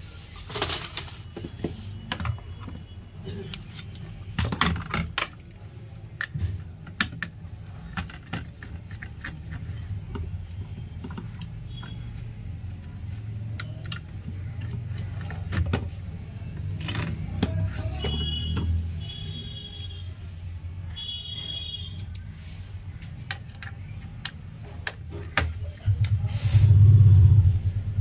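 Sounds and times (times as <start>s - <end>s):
screwdriver and metal parts clicking: 3.5s - 15.8s, 23.0s - 25.4s.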